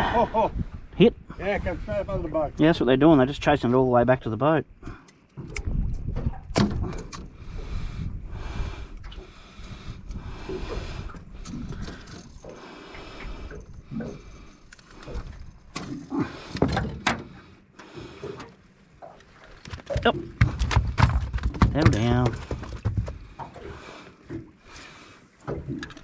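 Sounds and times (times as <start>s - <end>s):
knocks and rattles in metal boat: 15.0s - 17.4s, 19.6s - 23.6s.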